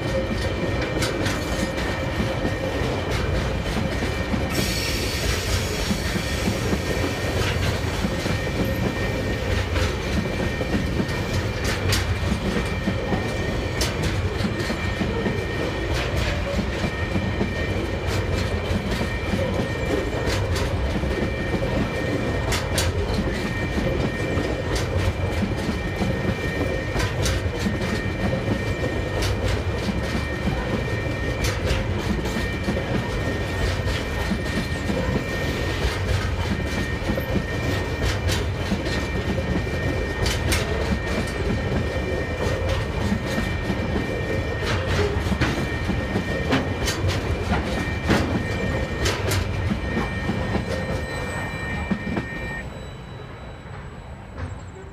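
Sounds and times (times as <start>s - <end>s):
train wheels clicking over rails: 0.0s - 52.6s
freight train rumble: 0.0s - 54.9s
two-tone level crossing signal: 21.1s - 53.8s.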